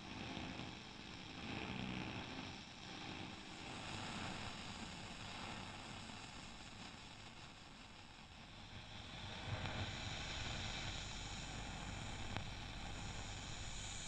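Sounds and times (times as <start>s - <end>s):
wind-like hiss: 2.9s - 14.0s.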